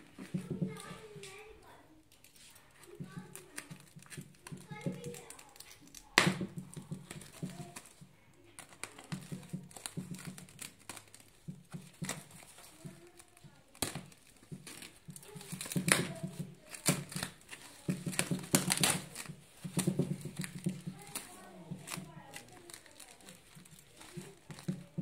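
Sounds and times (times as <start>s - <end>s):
tape crackling and crinkling: 0.0s - 25.0s
packing tape being slit: 8.6s - 25.0s.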